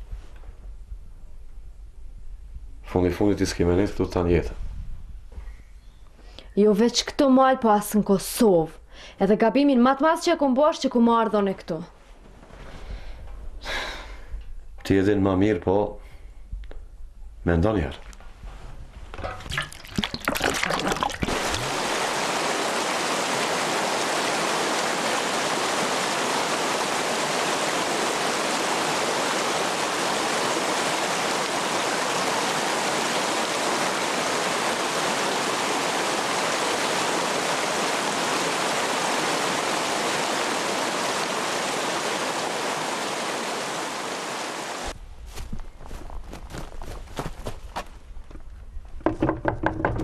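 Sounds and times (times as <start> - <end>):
stream rushing over rocks: 19.6 - 45.0
short knocks: 49.0 - 50.0.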